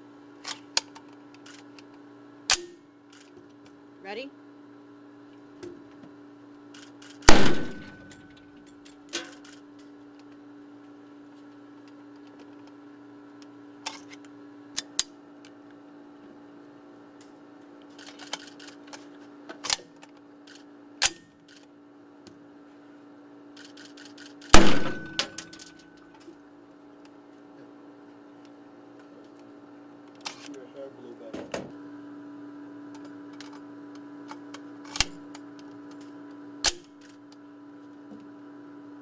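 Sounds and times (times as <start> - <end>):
steady low hum: 0.0 - 39.0
rifle shots with echo: 7.2 - 8.1, 24.5 - 25.4
rifle handling clicks: 18.0 - 19.1.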